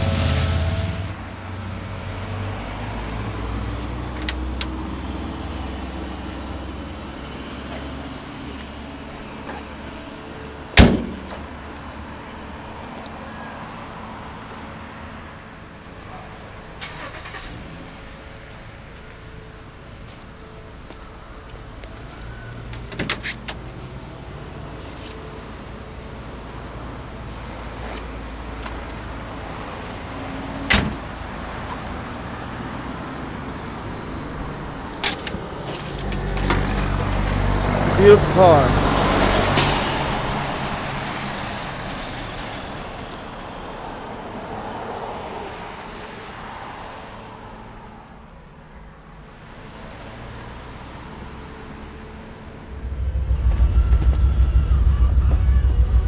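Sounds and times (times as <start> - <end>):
car door slamming shut: 10.8 - 11.4
low rumble: 52.3 - 56.0.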